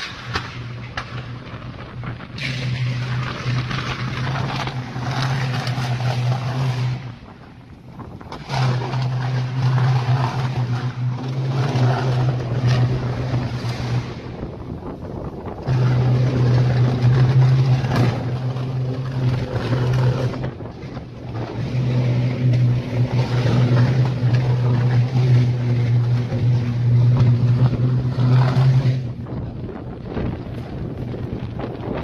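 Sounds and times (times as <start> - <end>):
sharp electrical crack: 0.0 - 7.2
electrical buzz: 0.0 - 32.0
wind on microphone: 0.0 - 32.0.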